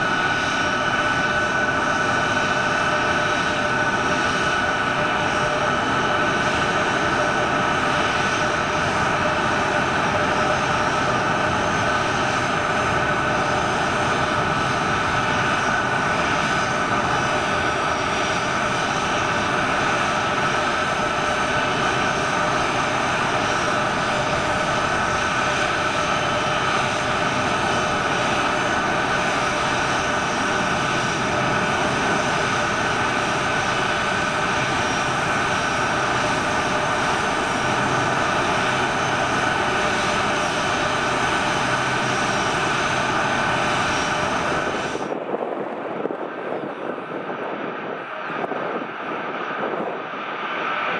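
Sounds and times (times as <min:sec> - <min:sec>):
jet engines with high whine: 0:00.0 - 0:50.9.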